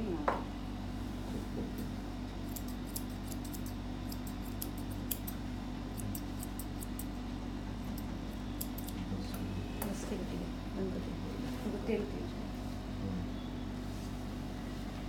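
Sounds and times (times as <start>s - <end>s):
steady low hum: 0.0s - 15.0s
scissors snipping hair: 1.8s - 7.2s, 7.8s - 10.0s.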